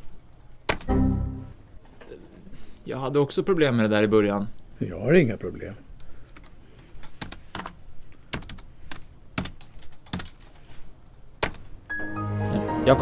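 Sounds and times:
computer keyboard typing: 0:06.3 - 0:11.7.

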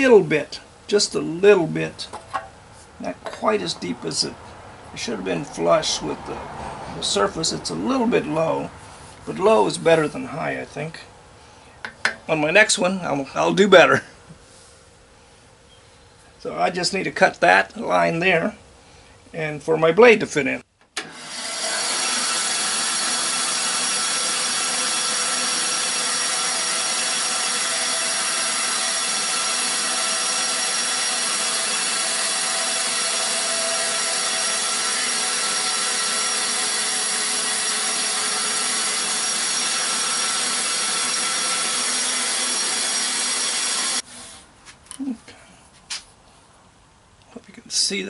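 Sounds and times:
band saw cutting plastic: 0:21.0 - 0:44.4.

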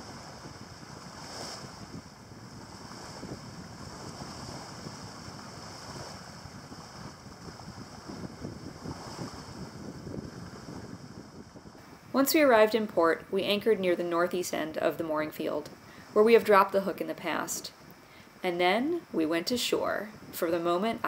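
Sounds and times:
wind gusts on microphone: 0:00.0 - 0:21.0.

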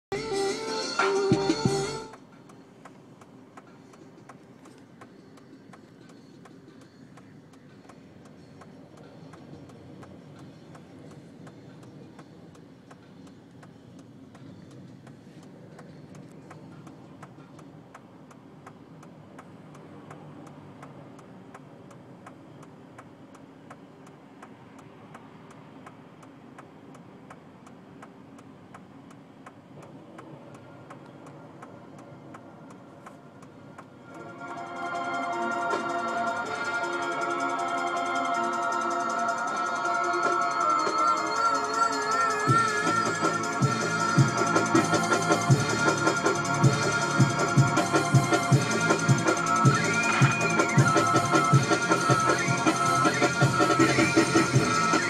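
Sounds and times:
regular ticking: 0:00.2 - 0:55.0
low steady rumble: 0:01.3 - 0:55.0.

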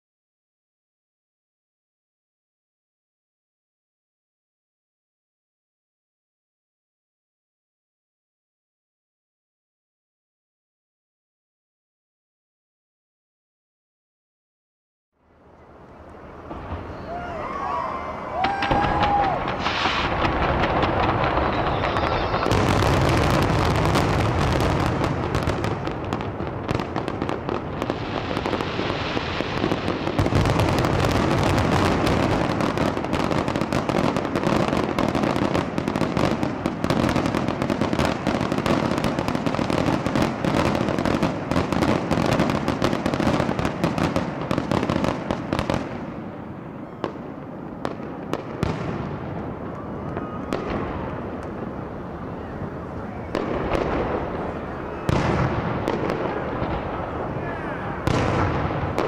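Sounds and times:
fireworks crackling and popping: 0:15.8 - 0:59.0.

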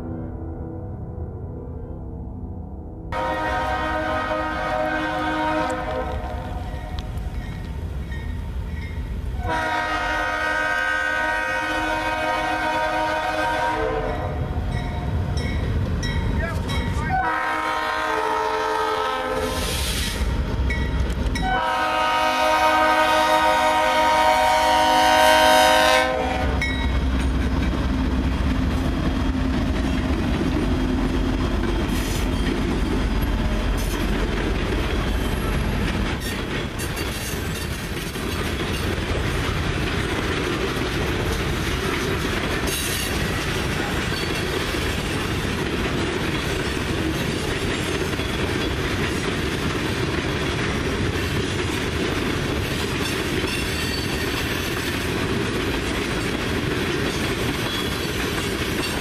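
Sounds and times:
locomotive air horn: 0:03.2 - 0:06.6, 0:09.4 - 0:14.4, 0:17.1 - 0:20.2, 0:21.4 - 0:26.7
locomotives rumbling past: 0:03.2 - 0:59.0
freight cars clickety-clack: 0:26.7 - 0:59.0.

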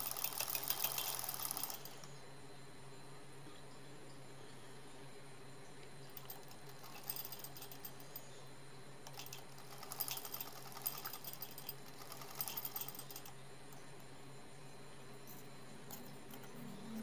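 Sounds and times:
sewing machine stitching: 0:00.0 - 0:02.0, 0:09.1 - 0:13.3.

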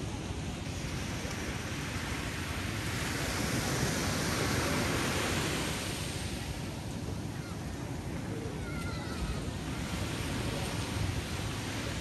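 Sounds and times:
waves breaking on sandy beach: 0:00.0 - 0:12.0.

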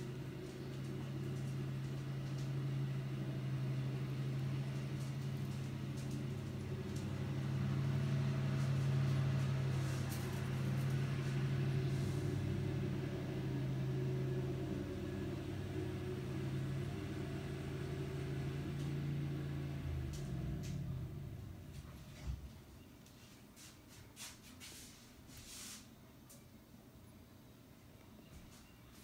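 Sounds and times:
motor humming: 0:00.0 - 0:22.4.

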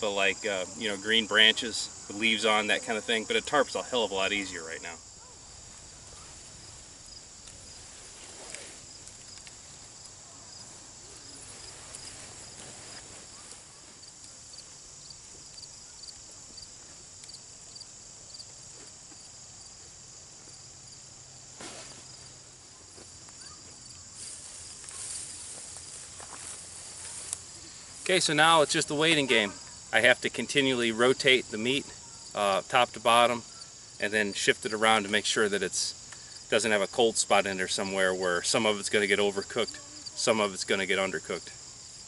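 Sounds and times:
insects chirping: 0:00.0 - 0:42.0
canvas tarp rustling: 0:05.6 - 0:09.9, 0:10.6 - 0:14.0, 0:21.5 - 0:29.6.

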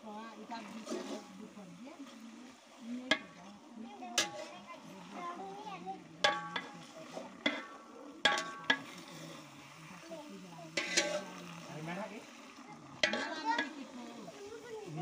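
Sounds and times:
meat sizzling: 0:00.0 - 0:15.0
metal ladle clanking against pot: 0:04.1 - 0:04.6, 0:06.2 - 0:09.2, 0:10.7 - 0:11.5, 0:12.9 - 0:14.0.

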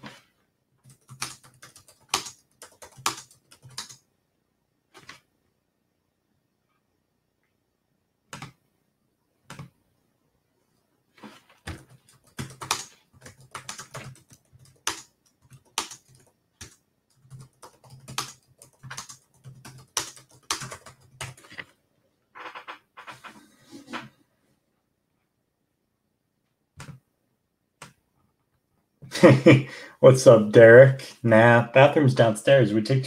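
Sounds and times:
computer keyboard typing: 0:00.8 - 0:04.0, 0:08.3 - 0:08.6, 0:09.5 - 0:09.7, 0:11.6 - 0:21.7, 0:26.8 - 0:27.0.

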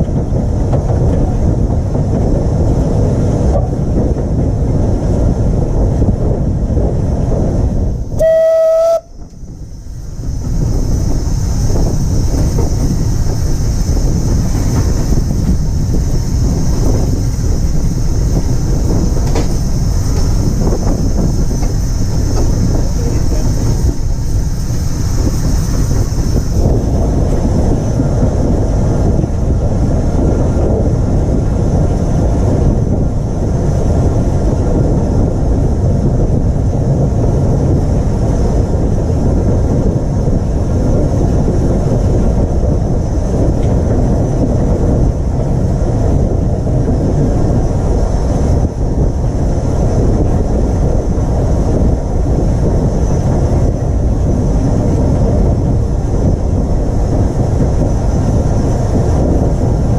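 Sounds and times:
steam locomotive running noise: 0:00.0 - 0:59.9
wind on microphone: 0:00.0 - 0:59.9.

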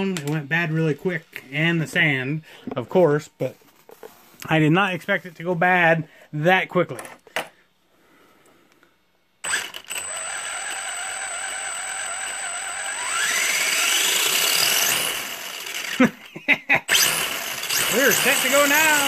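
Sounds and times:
electric motor high whine: 0:09.4 - 0:16.0.

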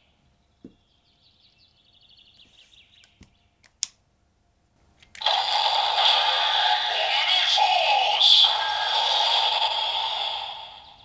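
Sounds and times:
toy electronic sound effect: 0:05.2 - 0:11.0.

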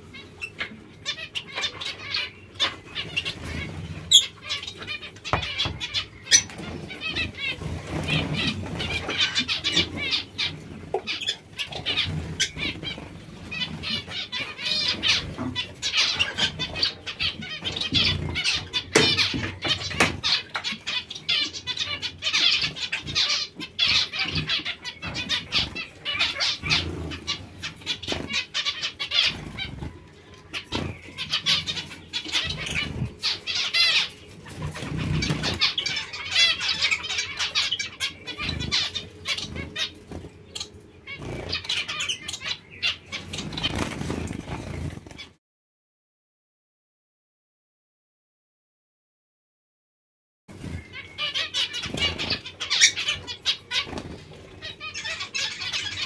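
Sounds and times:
finches chirping: 0:00.0 - 0:45.3, 0:50.6 - 0:56.0
wing flutters: 0:02.7 - 0:21.4, 0:22.3 - 0:45.4.

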